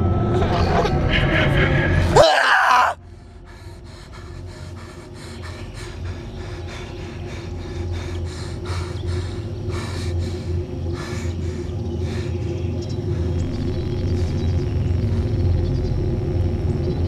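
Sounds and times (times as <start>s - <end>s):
low steady drone: 0.0s - 17.0s
man breathing hard: 1.4s - 13.5s.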